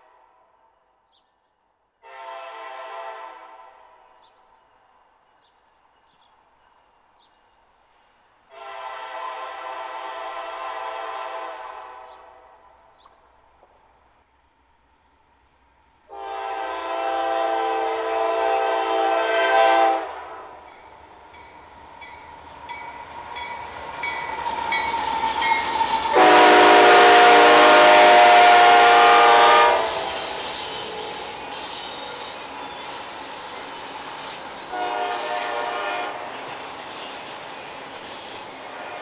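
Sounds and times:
locomotive air horn blasts: 2.0s - 4.0s, 8.5s - 12.5s, 16.1s - 20.6s, 26.1s - 30.3s, 34.7s - 36.4s
train rumbling and clattering: 12.0s - 16.7s, 20.6s - 39.0s.

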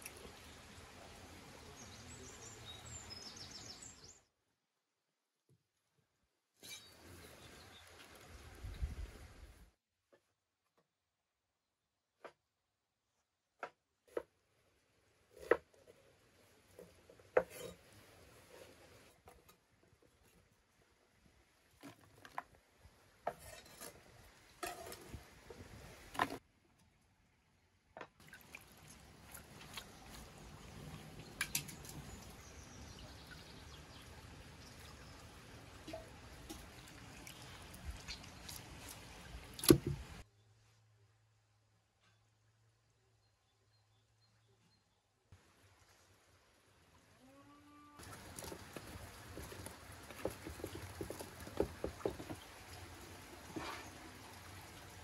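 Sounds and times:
soft wet handling of meat: 28.2s - 32.4s, 35.7s - 40.2s, 48.0s - 55.0s.

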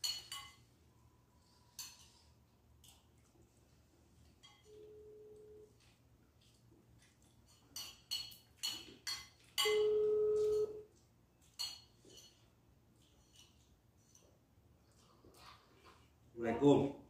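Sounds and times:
clicks and clinks from eating: 5.8s - 9.8s, 10.4s - 14.4s.

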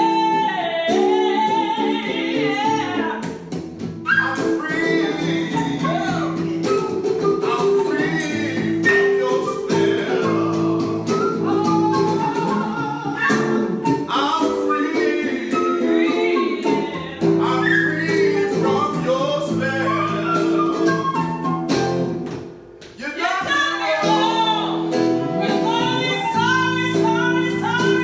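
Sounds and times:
man singing blues: 0.0s - 3.2s, 4.0s - 21.7s, 23.0s - 28.0s
electric guitar chords: 24.1s - 28.0s.

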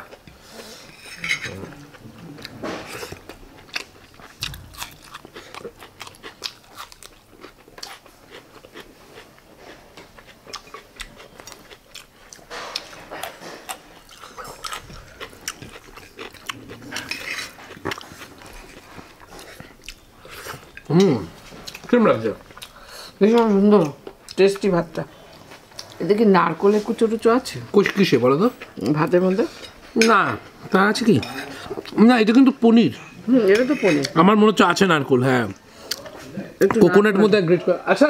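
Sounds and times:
chewing: 0.0s - 26.1s, 27.8s - 32.0s, 35.5s - 36.2s
spoon clinking on ceramic plates: 0.9s - 1.6s.

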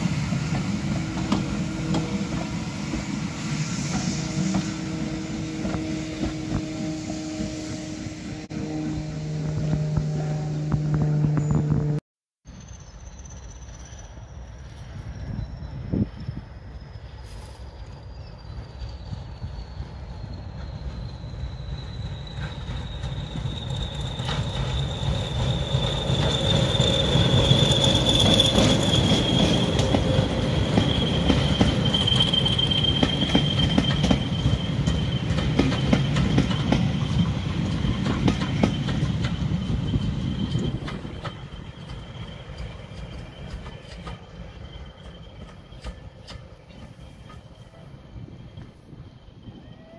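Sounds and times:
train rumbling past: 0.0s - 49.9s
high wheel squeal: 10.9s - 49.9s
wheels clicking over rail joints: 22.4s - 47.6s.

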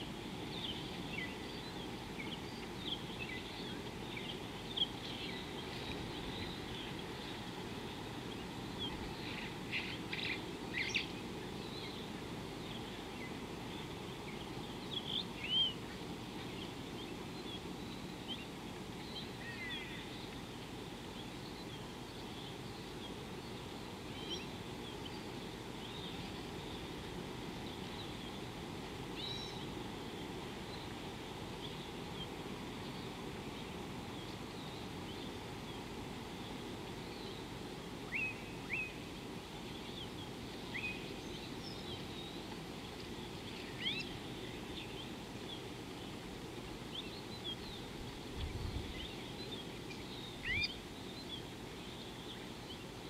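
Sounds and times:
low background noise: 0.0s - 53.0s
bird chirps and calls: 43.4s - 45.7s, 46.9s - 52.8s.

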